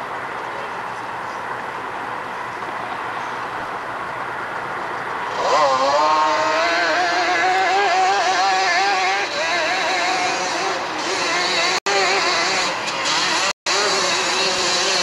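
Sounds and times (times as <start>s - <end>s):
quad engine revving hard: 5.2s - 15.0s.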